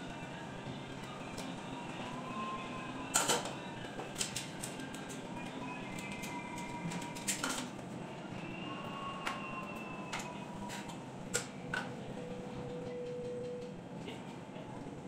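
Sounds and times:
faint steady tones: 0.0s - 15.0s.

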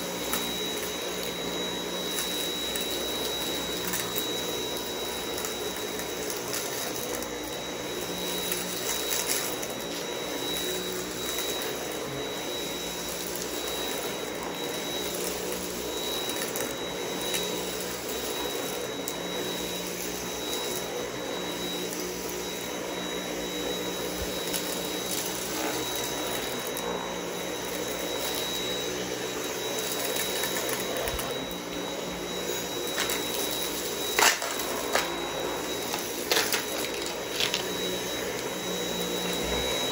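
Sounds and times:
vacuum cleaner motor whine: 0.0s - 39.9s
debris clicking up vacuum wand: 1.9s - 4.5s, 32.7s - 35.2s, 35.8s - 39.8s.

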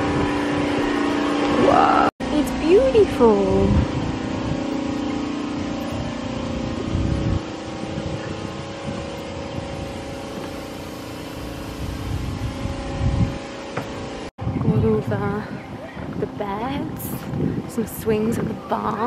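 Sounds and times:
low mechanical hum: 0.0s - 19.0s
wind buffeting microphone: 0.0s - 19.0s.

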